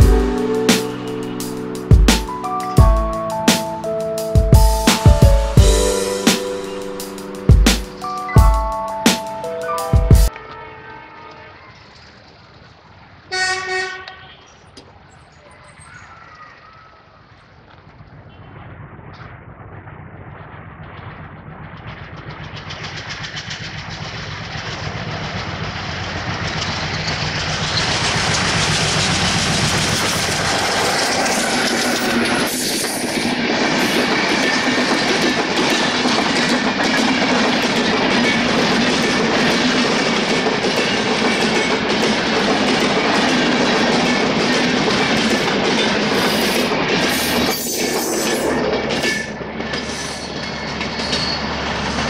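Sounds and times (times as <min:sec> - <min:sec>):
train passing at speed: 0:00.0 - 0:52.0.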